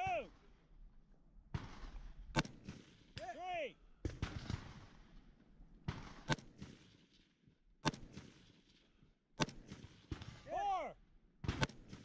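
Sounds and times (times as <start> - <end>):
rifle gunshots: 5.9 - 6.9.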